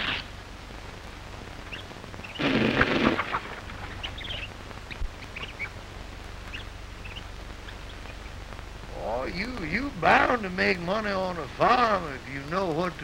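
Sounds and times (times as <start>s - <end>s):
film soundtrack hum and hiss: 0.0s - 13.0s
faint bird chirps: 1.6s - 2.7s, 3.8s - 9.8s.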